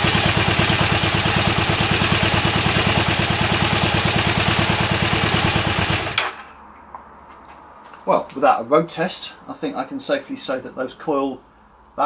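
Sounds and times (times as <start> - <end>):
motorcycle engine idling: 0.0 - 6.2.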